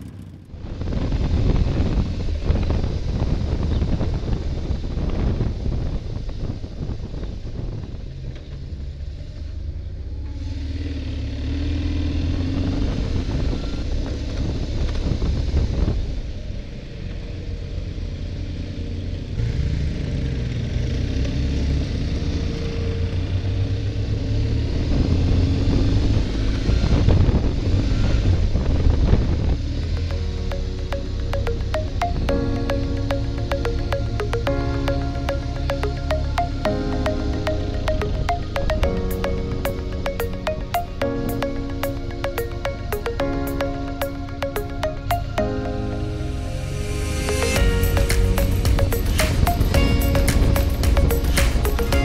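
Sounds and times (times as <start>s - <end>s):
motorcycle engine running: 0.0s - 7.1s, 47.4s - 52.0s
wind noise on microphone: 0.0s - 9.2s, 12.2s - 16.7s, 24.0s - 31.2s, 46.1s - 52.0s.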